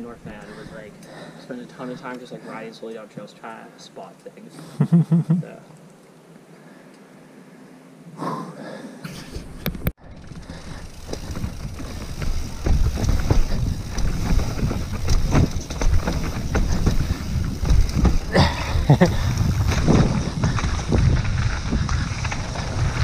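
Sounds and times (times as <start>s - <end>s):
mountain bike rumbling on dirt trail: 9.4s - 23.0s.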